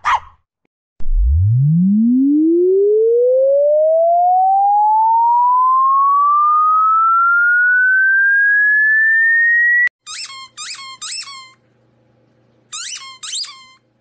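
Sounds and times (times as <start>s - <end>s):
electronic tone sweeping upward: 1.0s - 9.9s.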